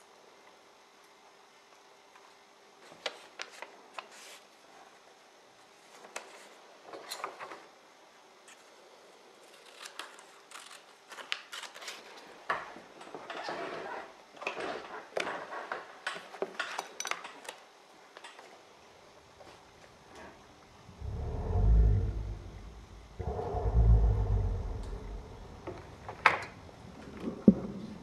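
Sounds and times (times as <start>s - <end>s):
paper rustling and crinkling: 9.4s - 12.4s.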